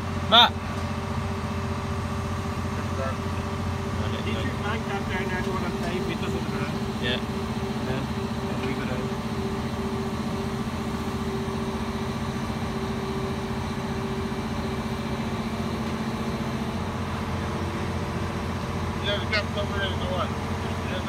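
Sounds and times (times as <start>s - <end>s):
diesel engine droning: 0.0s - 21.0s.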